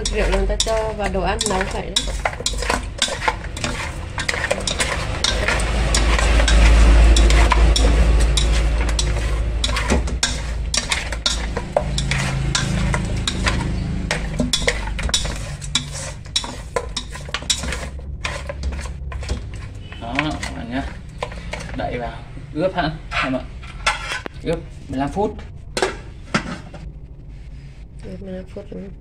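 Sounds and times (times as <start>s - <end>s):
low rumble: 0.0s - 16.4s, 17.0s - 29.0s
bones knocking against pot: 0.0s - 21.8s.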